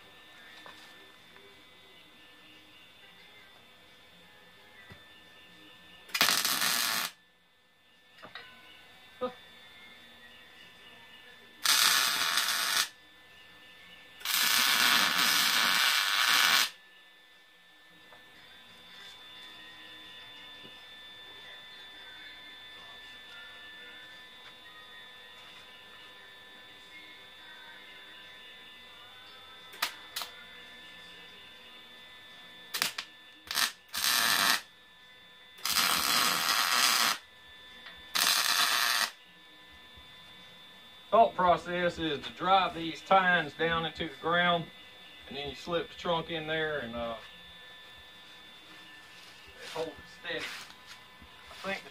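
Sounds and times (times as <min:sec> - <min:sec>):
welding arc crackle: 0:06.1 - 0:07.2, 0:11.6 - 0:13.0, 0:14.2 - 0:16.8, 0:29.7 - 0:30.4, 0:32.7 - 0:34.7, 0:35.6 - 0:37.2, 0:38.1 - 0:39.2.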